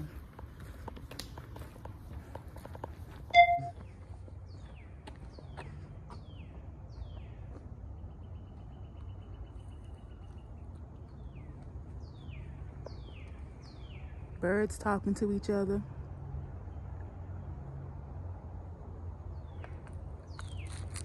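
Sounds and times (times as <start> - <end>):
birds chirping: 0.0 - 15.7
short loud beep: 3.4 - 3.8.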